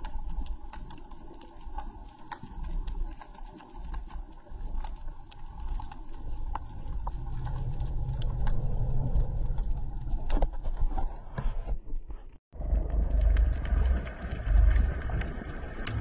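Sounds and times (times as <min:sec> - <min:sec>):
underwater rumble of moving water: 0:00.0 - 0:11.4, 0:12.5 - 0:16.0
sharp clicks and pops: 0:12.6 - 0:16.0.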